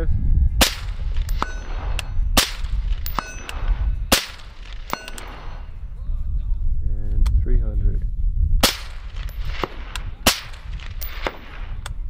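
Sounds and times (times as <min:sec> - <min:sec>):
suppressed rifle shots: 0:00.6 - 0:05.7, 0:08.6 - 0:12.0
bullet hitting steel target: 0:00.6 - 0:05.8, 0:08.6 - 0:11.8.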